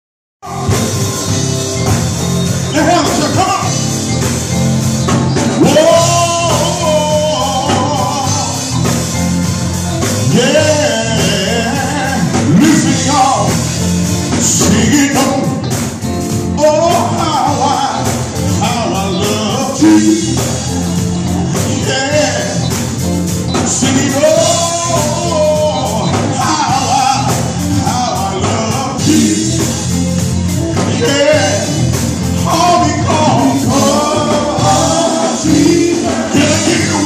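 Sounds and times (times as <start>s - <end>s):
bass notes: 0.4s - 37.0s
electric guitars: 0.4s - 37.0s
man singing into microphone: 5.6s - 8.9s, 10.2s - 13.6s, 14.3s - 15.6s, 16.6s - 20.6s, 21.5s - 22.7s, 23.6s - 29.8s, 30.8s - 37.0s.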